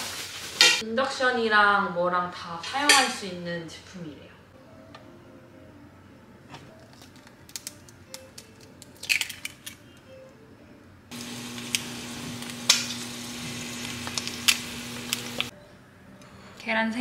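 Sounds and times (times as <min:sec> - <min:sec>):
eggs cracking into pan: 0:06.8 - 0:09.8, 0:11.2 - 0:13.2, 0:13.8 - 0:15.5
eggs sizzling in hot oil: 0:11.1 - 0:15.5.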